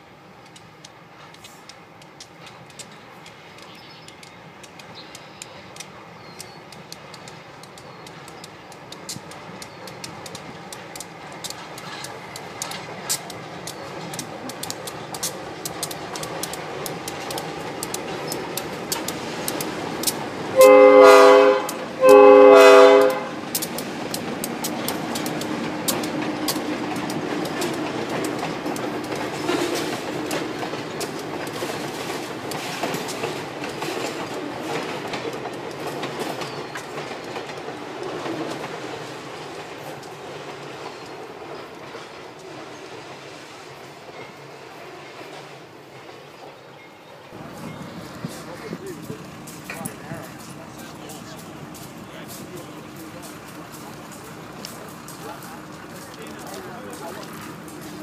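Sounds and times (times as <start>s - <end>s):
diesel locomotive engine: 0.0s - 58.0s
wheels clicking over rail joints: 0.0s - 58.0s
train horn blasts: 20.5s - 23.4s.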